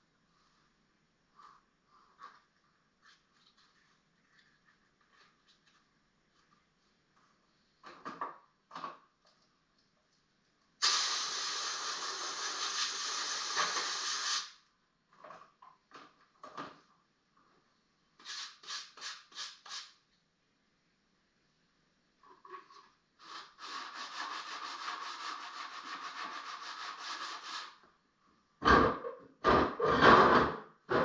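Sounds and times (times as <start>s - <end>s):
loud steady hiss: 10.8s - 14.6s
sandpaper strokes on wood: 23.2s - 27.8s.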